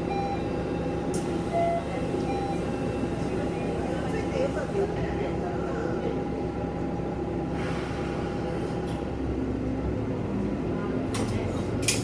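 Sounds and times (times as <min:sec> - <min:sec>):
diesel railcar engine rumbling: 0:00.0 - 0:12.0.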